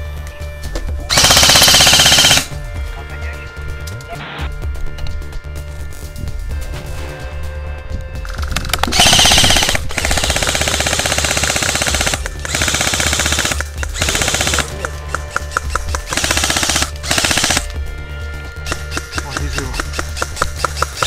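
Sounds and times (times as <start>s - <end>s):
airsoft gun firing rapid bursts: 1.1s - 2.5s, 8.8s - 14.8s, 16.0s - 17.7s, 18.7s - 21.0s.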